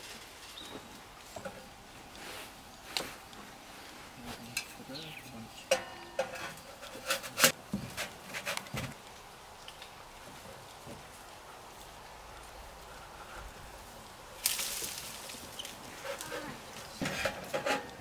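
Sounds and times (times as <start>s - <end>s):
metal cookware clinking: 5.6s - 7.5s.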